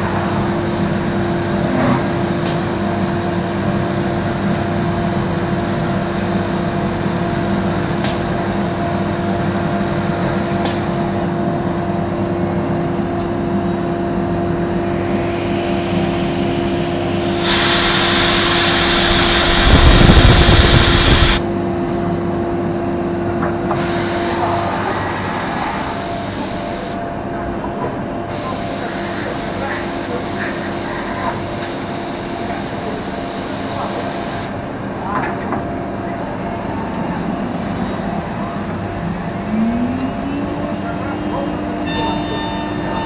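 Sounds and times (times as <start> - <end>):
machine hum: 11.3 - 23.3, 36.6 - 42.3
loud hiss: 17.2 - 21.4
heavy low rumble: 18.1 - 28.3, 34.6 - 41.9.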